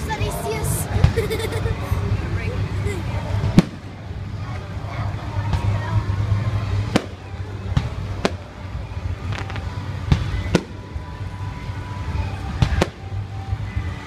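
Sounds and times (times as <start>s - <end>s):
fireworks bursting: 3.4s - 4.7s, 6.5s - 11.3s, 12.4s - 13.3s.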